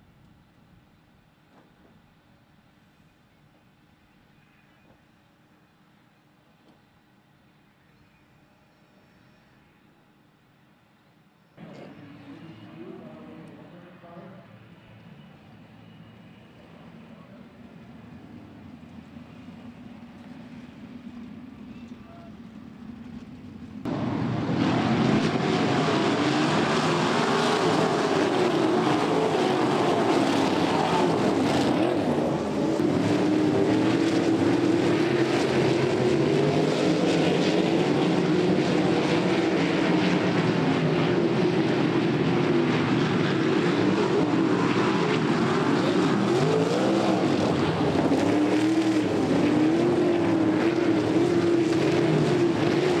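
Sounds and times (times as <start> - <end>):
sprint car engines racing: 11.6 - 53.0.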